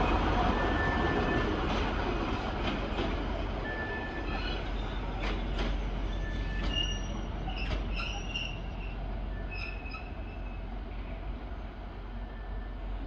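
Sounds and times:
high wheel squeals: 6.0s - 10.7s.

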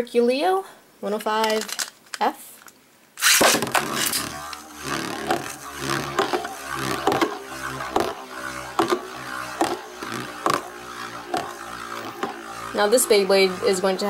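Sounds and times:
spinning top whirring: 1.4s - 1.9s, 2.6s - 14.0s.

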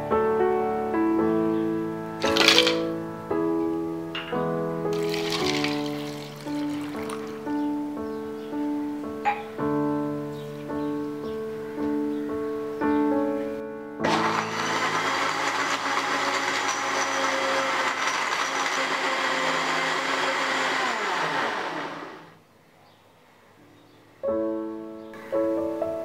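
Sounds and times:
piano music: 0.0s - 15.5s, 23.6s - 26.0s
blender whirring: 2.2s - 2.8s, 5.0s - 7.4s, 14.0s - 22.4s.

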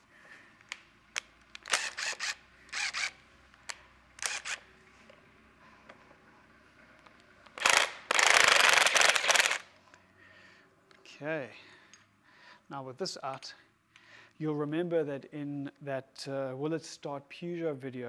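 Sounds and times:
cordless impact driver bursts: 1.6s - 4.7s, 7.6s - 9.7s.

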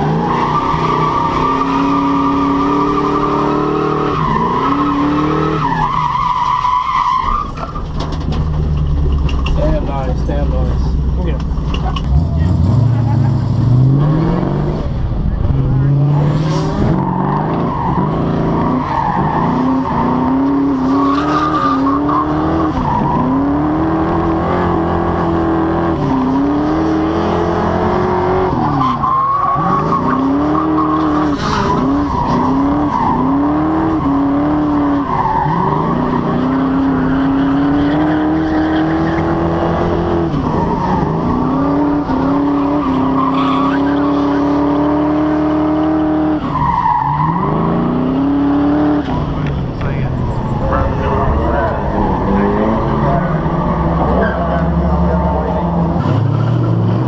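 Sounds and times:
tires squealing on pavement: 0.0s - 8.7s, 15.6s - 57.0s
car engine revving hard: 12.0s - 49.5s.

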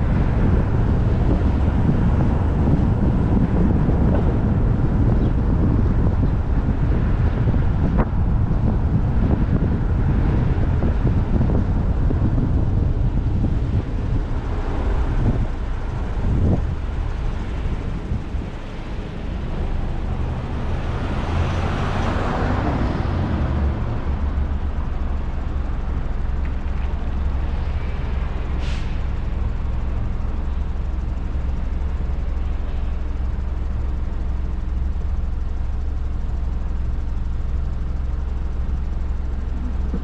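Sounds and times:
traffic rumble: 0.0s - 40.0s.

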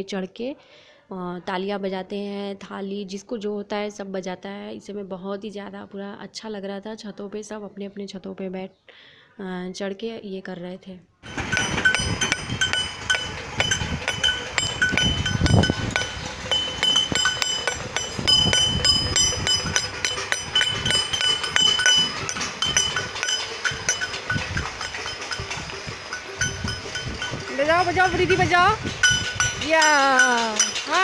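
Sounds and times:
metal plates being beaten: 11.3s - 31.0s.

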